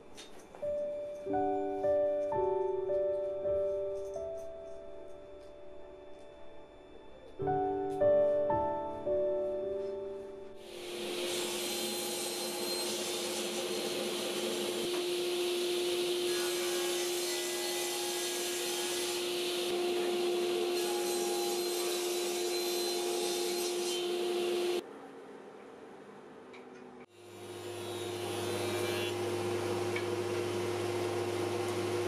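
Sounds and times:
table saw cutting wood: 10.6 - 24.8, 27.1 - 32.0.

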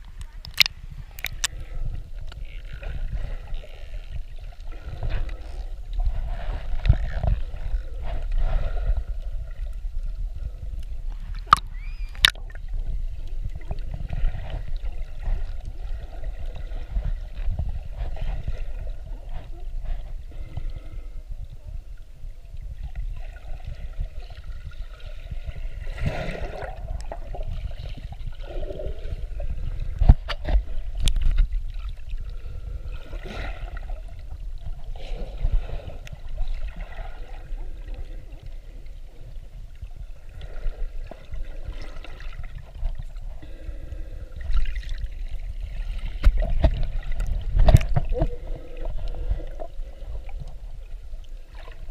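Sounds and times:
underwater sloshing and gurgling: 0.0 - 51.9
sharp clicks: 0.4 - 1.5.

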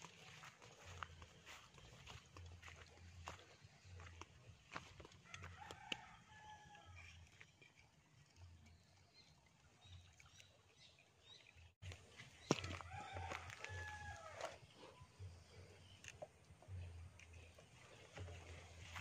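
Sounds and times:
distant rooster crowing: 5.3 - 7.0, 12.5 - 14.6.

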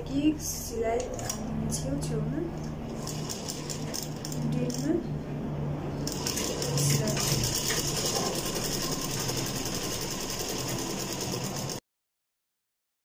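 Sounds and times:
sewing machine clatter: 3.0 - 4.8, 6.0 - 11.8.

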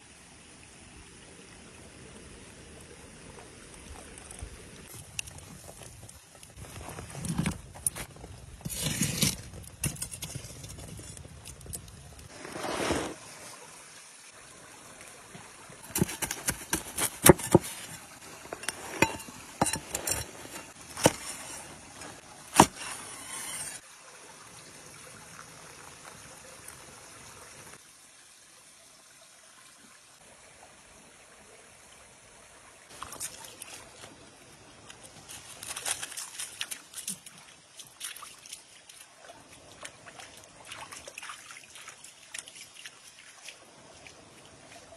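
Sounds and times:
stream trickling: 0.0 - 44.9
knife cutting crisp crust: 8.6 - 10.3, 15.9 - 23.8
dog paws on wet gravel: 34.9 - 40.3.

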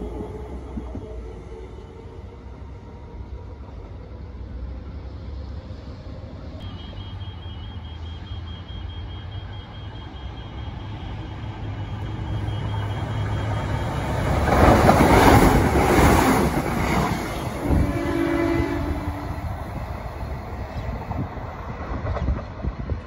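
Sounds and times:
electric train passing: 0.0 - 23.0
train horn: 6.6 - 14.0, 17.4 - 19.6.

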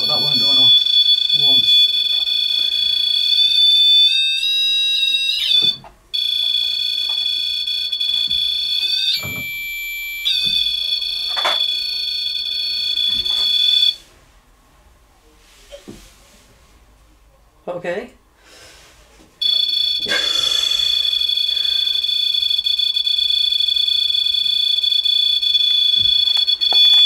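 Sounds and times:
high-pitched electronic alarm tone: 0.0 - 14.0, 19.4 - 27.0.

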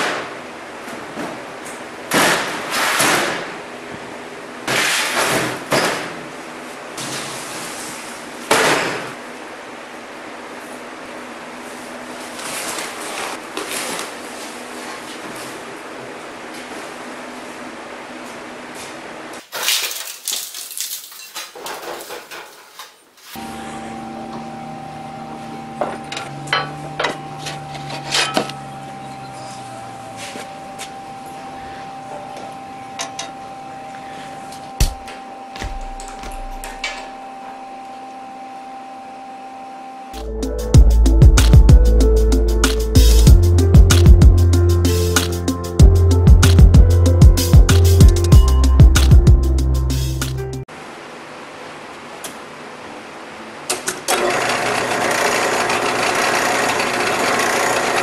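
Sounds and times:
steady hum: 23.4 - 53.7
steel clanking and scraping: 25.8 - 28.6.

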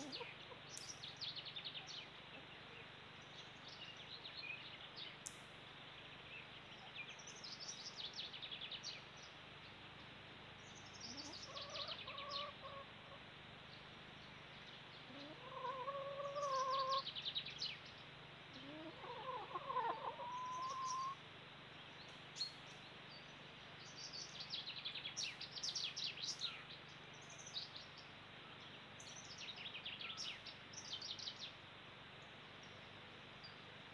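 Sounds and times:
fowl calling: 0.0 - 0.7, 11.1 - 13.2, 15.1 - 17.1, 18.6 - 21.2
songbirds trilling: 0.0 - 33.9.

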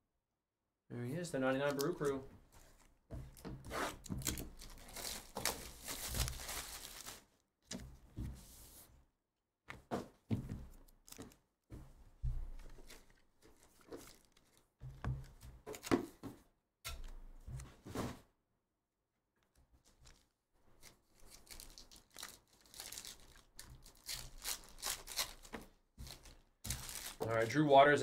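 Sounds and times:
plastic wrap crinkling: 3.9 - 7.3, 12.6 - 14.8, 19.8 - 27.6.

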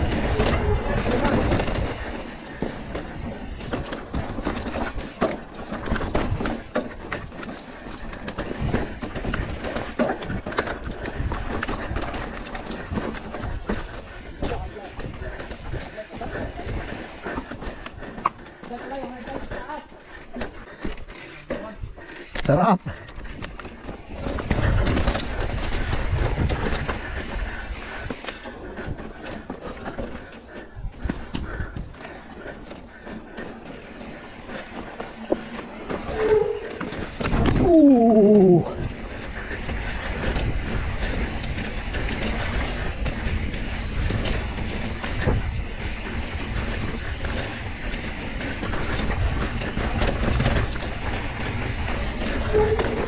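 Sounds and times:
bike rattling over bumps: 0.0 - 53.0
bike tyre noise: 0.0 - 53.0
wind rumbling on microphone: 22.9 - 32.8, 33.8 - 53.0.

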